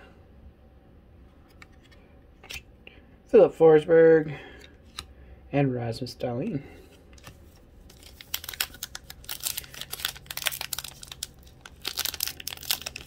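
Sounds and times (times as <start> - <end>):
cards flipping and rustling: 4.8 - 5.1, 6.9 - 13.0.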